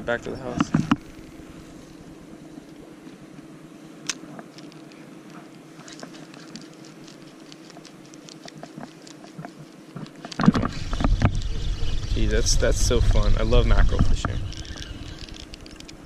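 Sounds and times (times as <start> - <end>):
steady low hum: 0.0 - 16.0
fishing reel clicking: 14.2 - 16.0.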